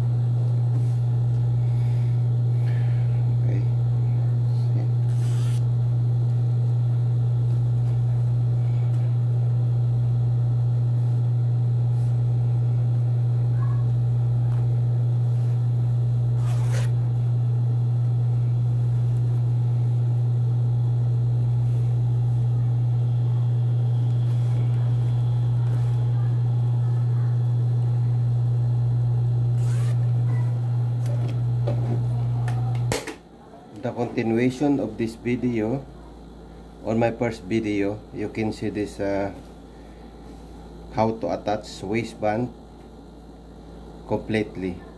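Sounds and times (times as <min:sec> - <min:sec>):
sewing machine motor humming: 0:14.7 - 0:33.0.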